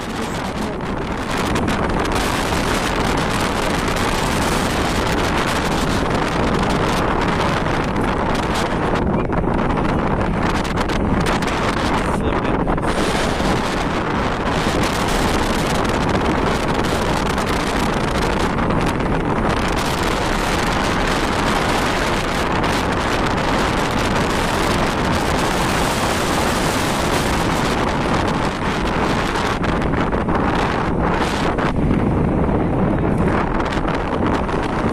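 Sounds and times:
wind buffeting microphone: 0:00.0 - 0:34.9.

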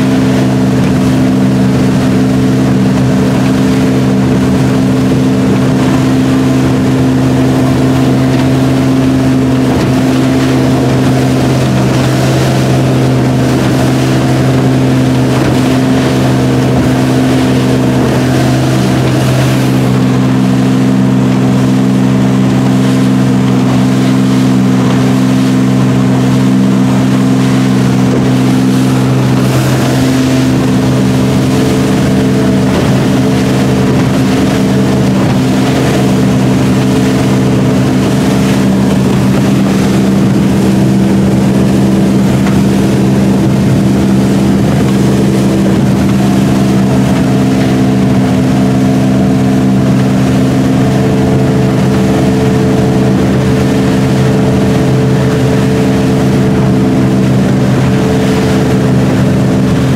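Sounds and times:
boat engine running: 0:00.0 - 0:59.9
water rushing past hull: 0:00.0 - 0:59.9
wind rushing: 0:26.9 - 0:42.2.

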